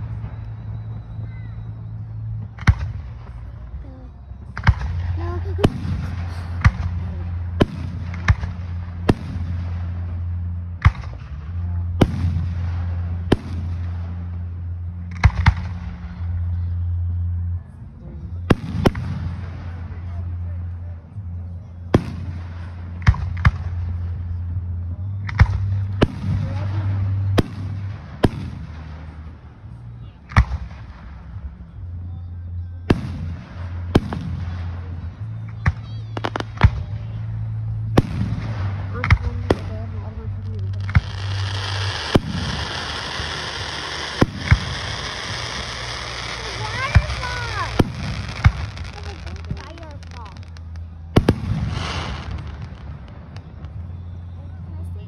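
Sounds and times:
low steady hum: 0:00.0 - 0:55.0
fireworks bursting: 0:04.4 - 0:14.4, 0:32.9 - 0:54.3.

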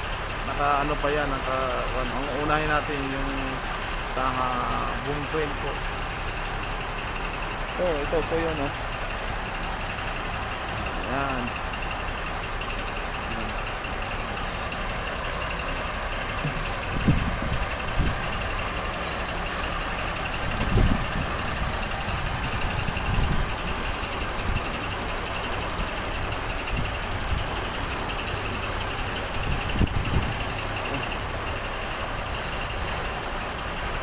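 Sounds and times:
heavy vehicles rumbling: 0:00.0 - 0:34.0.

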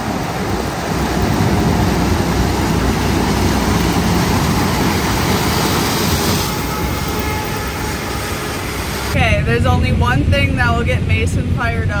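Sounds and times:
combine harvester running: 0:00.0 - 0:09.6.

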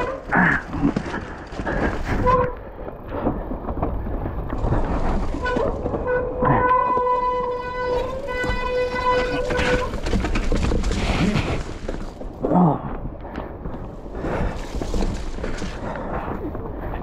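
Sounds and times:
bike clattering over rocky ground: 0:00.0 - 0:12.4, 0:13.4 - 0:16.4
horn-like hum: 0:05.4 - 0:10.1.

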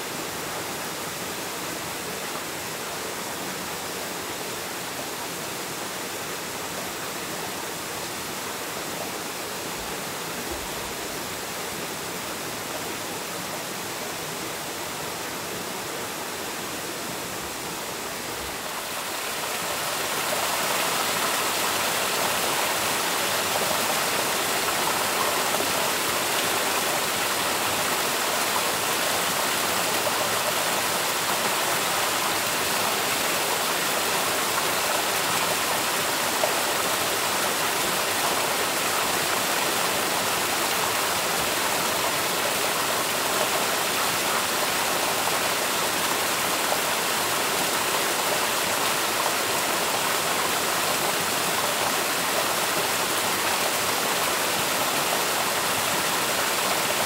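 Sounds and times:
rushing water: 0:00.0 - 0:57.0.

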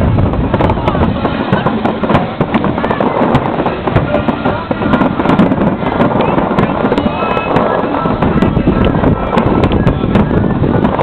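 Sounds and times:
fireworks crackling and cracking: 0:00.0 - 0:11.0.

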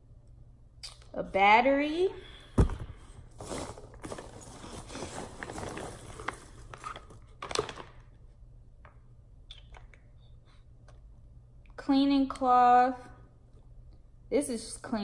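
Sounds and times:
packing peanuts rustling: 0:03.4 - 0:08.0.

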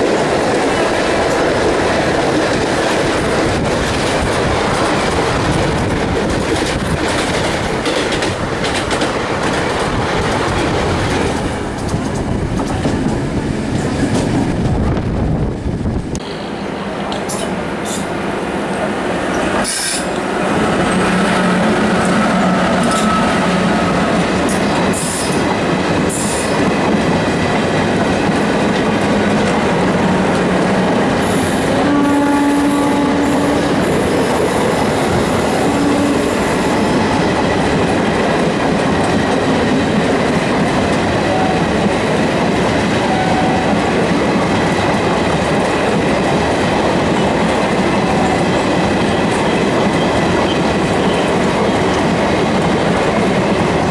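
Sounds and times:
train wheels and rail clatter: 0:00.0 - 0:53.9
short tone: 0:22.1 - 0:23.7.

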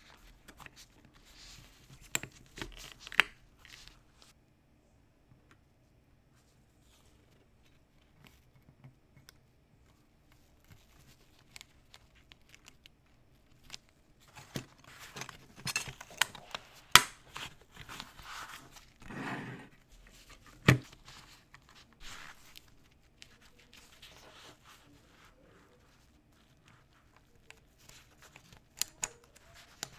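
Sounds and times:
hands handling plastic parts: 0:10.3 - 0:19.0.

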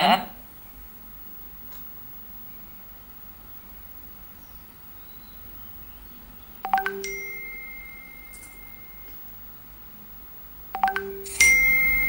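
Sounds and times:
message notification chime: 0:06.7 - 0:09.1, 0:10.8 - 0:12.0.

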